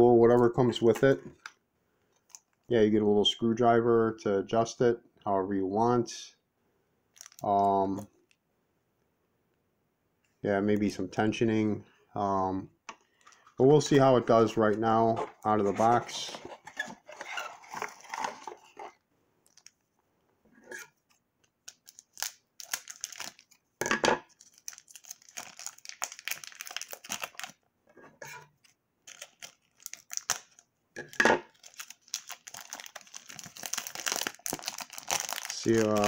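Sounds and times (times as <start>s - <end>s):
plastic wrap crinkling and tearing: 7.1s - 7.5s, 15.3s - 19.8s, 21.4s - 27.6s, 29.0s - 30.7s, 31.4s - 36.0s.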